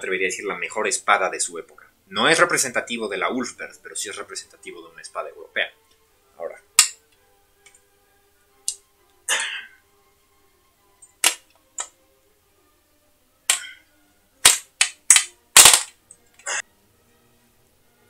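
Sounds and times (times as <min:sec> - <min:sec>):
steel sword clicking and knocking: 0:06.8 - 0:07.0.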